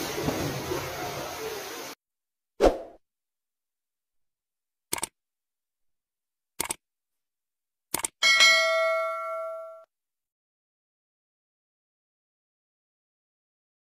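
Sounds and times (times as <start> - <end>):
bell notification ding: 8.2 - 9.9.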